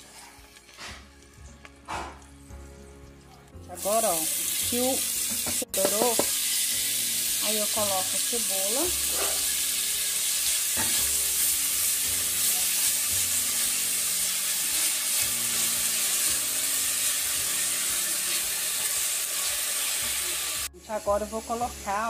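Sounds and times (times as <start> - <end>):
onion sizzling in a pot: 0.0 - 22.0
spatula stirring and scraping: 8.9 - 20.2.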